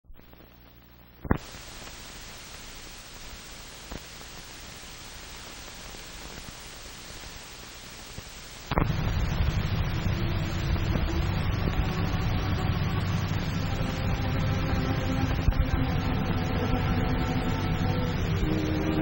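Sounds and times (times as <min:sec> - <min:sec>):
film soundtrack hiss: 0:00.0 - 0:19.0
loud low rumble: 0:08.7 - 0:19.0.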